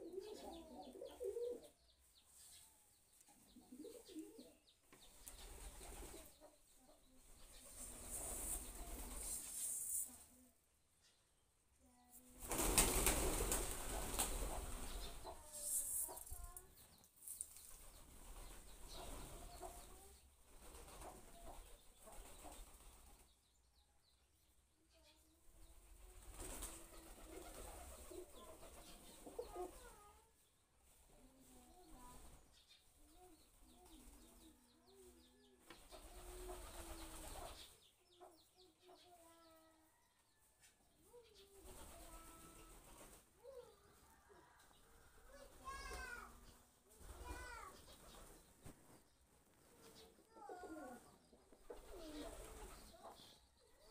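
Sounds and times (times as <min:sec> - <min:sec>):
pigeons cooing: 0:00.0 - 0:01.8, 0:03.5 - 0:04.6, 0:05.3 - 0:06.4, 0:26.0 - 0:30.1, 0:36.0 - 0:37.7, 0:49.8 - 0:53.2
wings flapping: 0:05.2 - 0:06.3, 0:07.6 - 0:10.0, 0:12.4 - 0:16.3, 0:20.5 - 0:23.2, 0:26.0 - 0:29.3, 0:35.8 - 0:37.7, 0:41.6 - 0:43.3, 0:51.6 - 0:52.9.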